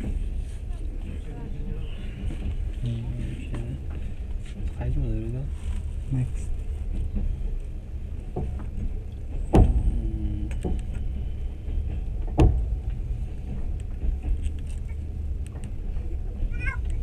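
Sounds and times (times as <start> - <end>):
train rumbling along track: 0.0 - 17.0
sharp knock: 9.5 - 10.0.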